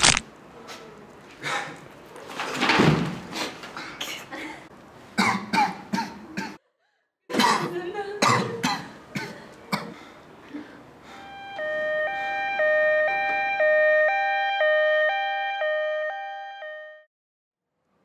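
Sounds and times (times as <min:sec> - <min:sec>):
man coughing and choking: 0:05.2 - 0:06.6, 0:07.3 - 0:10.0
two-tone electronic siren: 0:11.1 - 0:17.1.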